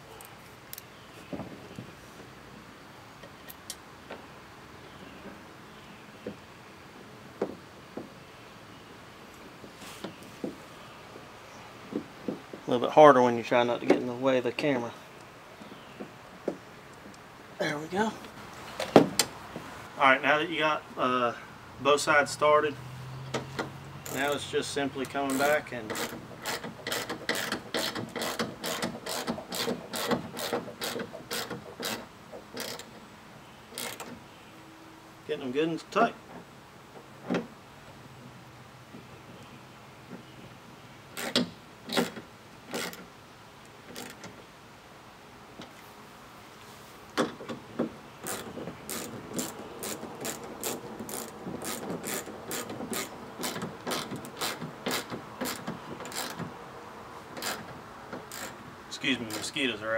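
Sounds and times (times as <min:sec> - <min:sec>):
hand ratchet clicking: 0:25.0 - 0:32.0, 0:48.2 - 0:56.4, 0:57.4 - 0:58.6, 0:59.3 - 0:59.6.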